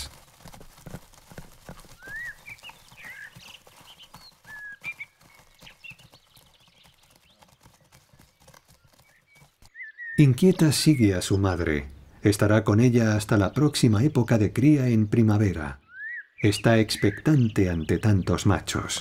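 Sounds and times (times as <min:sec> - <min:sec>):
hooves clattering over rocks: 0:00.0 - 0:09.8.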